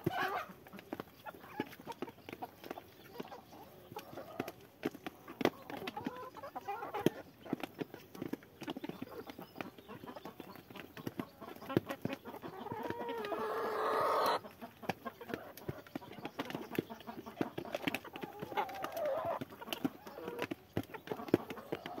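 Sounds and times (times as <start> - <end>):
chickens clucking: 0.0 - 22.0
chickens pecking feed from a tray: 0.0 - 22.0
long chicken call: 12.8 - 14.4.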